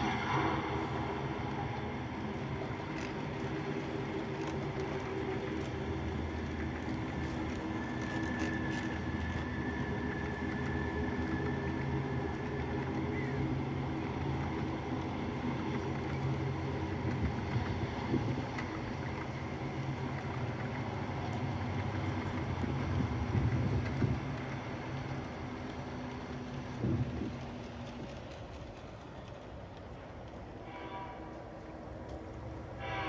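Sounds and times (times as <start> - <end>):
diesel locomotive engine drone: 0.0 - 33.0.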